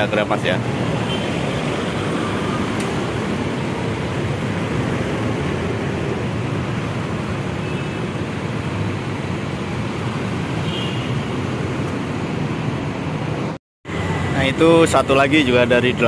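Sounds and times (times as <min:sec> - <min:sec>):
diesel bus engines rumbling: 0:00.0 - 0:07.6
passing cars and motorbikes: 0:00.0 - 0:16.0.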